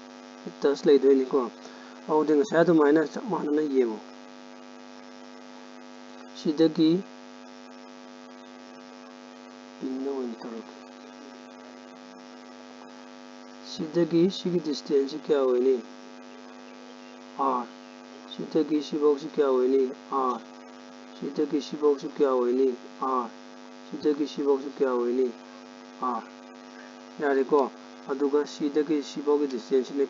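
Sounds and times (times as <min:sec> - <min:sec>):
electrical mains hum: 0:00.0 - 0:30.0
voice bursts: 0:09.8 - 0:11.4, 0:13.6 - 0:30.0.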